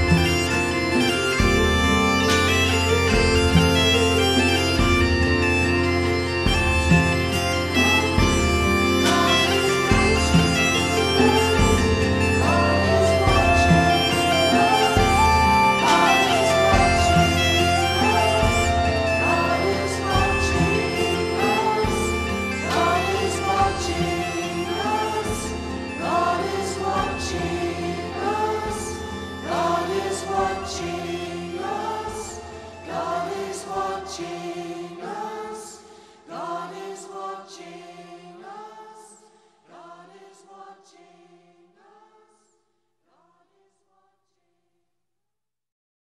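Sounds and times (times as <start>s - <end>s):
steady bass line: 0.0s - 26.0s
slow instrumental music: 0.0s - 35.3s.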